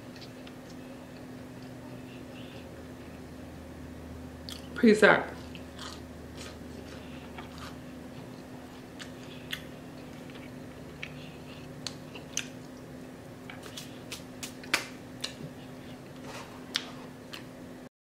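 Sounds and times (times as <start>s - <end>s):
sharp crunches while chewing: 5.4s - 16.0s
chewing crispy fried fish: 5.4s - 17.6s.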